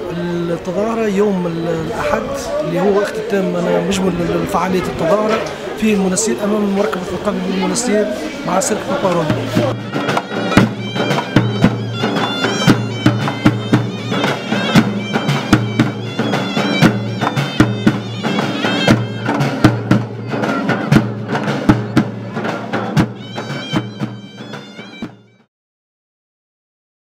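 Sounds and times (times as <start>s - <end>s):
reedy wind melody: 0.0s - 25.5s
frame drums beating fast rhythm: 7.1s - 25.4s.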